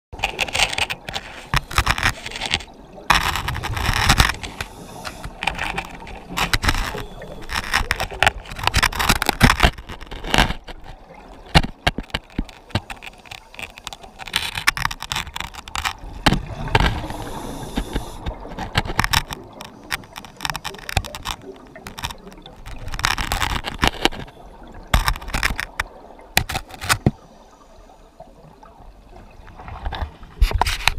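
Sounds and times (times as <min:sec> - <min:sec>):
clicks and crackles: 0:00.2 - 0:27.2, 0:29.5 - 0:30.9.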